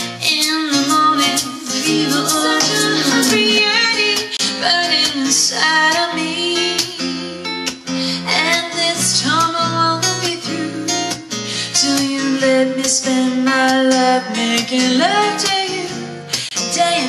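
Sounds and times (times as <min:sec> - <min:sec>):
acoustic guitar strumming: 0:00.0 - 0:17.0
woman singing: 0:00.0 - 0:17.0.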